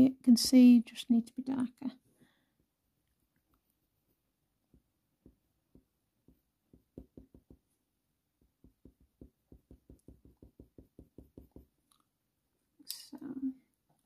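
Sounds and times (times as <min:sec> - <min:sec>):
pencil strokes on paper: 0:03.6 - 0:11.8.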